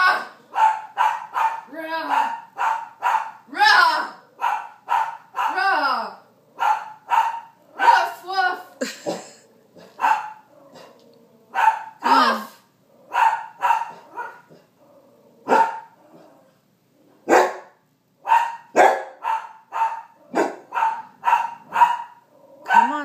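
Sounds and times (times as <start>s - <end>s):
puppy barking: 0.2s - 3.5s, 4.4s - 5.7s, 6.6s - 8.2s, 9.8s - 10.9s, 11.5s - 12.1s, 13.1s - 14.7s, 15.4s - 16.0s, 17.2s - 23.0s.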